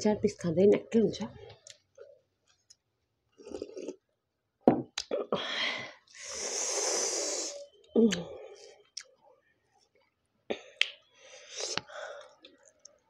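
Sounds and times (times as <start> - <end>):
breathy hiss through mouth: 6.1 - 7.6.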